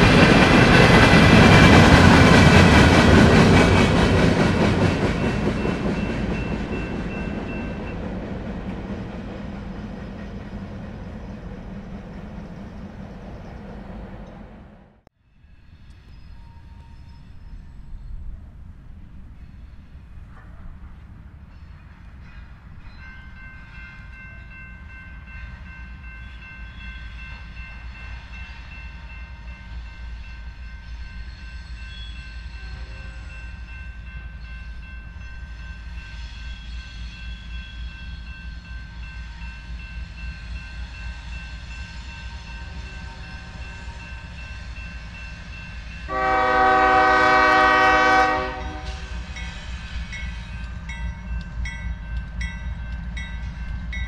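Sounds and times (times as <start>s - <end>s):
freight train rumbling: 0.0s - 54.0s
locomotive air horn blast: 46.1s - 49.3s.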